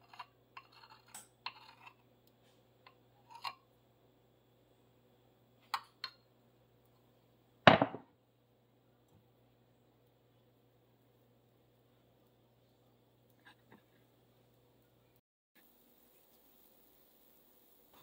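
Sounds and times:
utensil scraping glass bowl: 0.0 - 2.0, 2.9 - 3.6
kitchenware clattering: 7.7 - 8.0.

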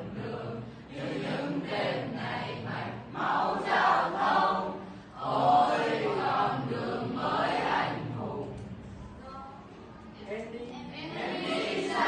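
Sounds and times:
students singing in chorus: 0.0 - 9.0, 11.0 - 12.0.

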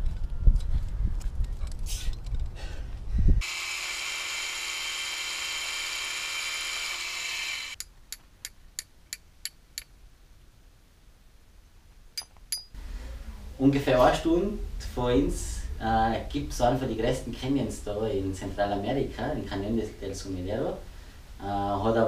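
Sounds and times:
wind buffeting microphone: 0.0 - 3.4
power drill drilling rock: 3.4 - 7.8.

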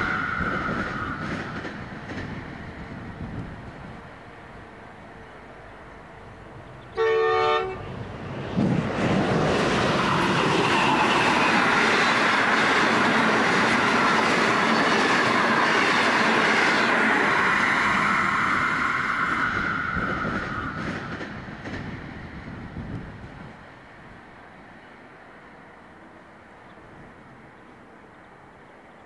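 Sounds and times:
train wheels clattering on rails: 0.0 - 3.8, 7.9 - 23.5
locomotive horn blast: 6.9 - 8.0.

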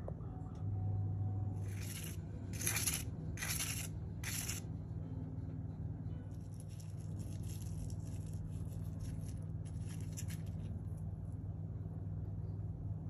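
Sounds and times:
low steady hum: 0.0 - 13.0
knife crunching through fried fish: 1.6 - 4.6.

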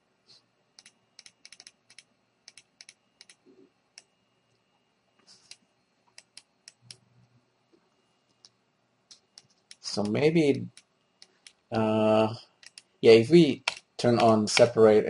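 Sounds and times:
keyboard and mouse clicking: 0.8 - 3.4, 5.4 - 7.0, 8.4 - 11.6, 12.6 - 12.9, 13.6 - 14.8.

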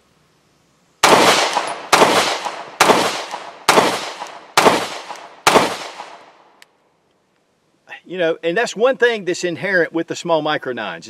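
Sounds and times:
pistol shots: 1.0 - 6.4.

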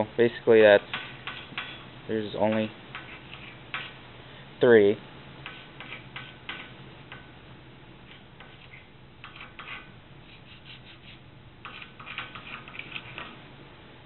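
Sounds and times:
marking stick scratching steel: 2.5 - 4.0, 5.4 - 6.7, 8.1 - 13.4.

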